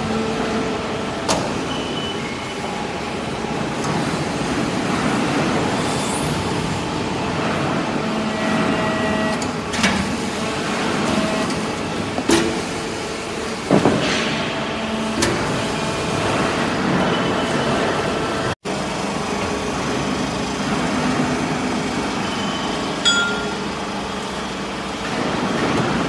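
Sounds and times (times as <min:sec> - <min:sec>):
hydraulic press machine noise: 0:00.0 - 0:26.0
sharp metal clanks: 0:23.0 - 0:23.7.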